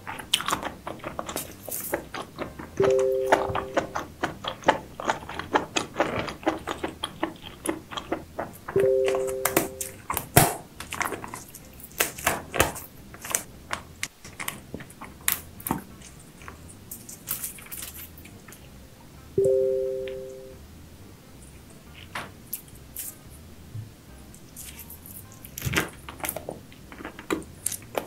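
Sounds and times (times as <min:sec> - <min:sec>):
two-note chime: 0:02.8 - 0:03.9, 0:08.8 - 0:10.0, 0:19.4 - 0:20.6.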